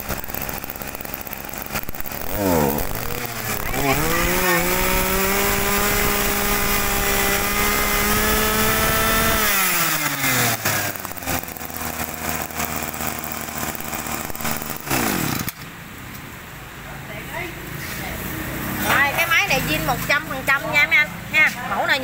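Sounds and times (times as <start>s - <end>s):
brush cutter engine revving: 0.0s - 15.7s.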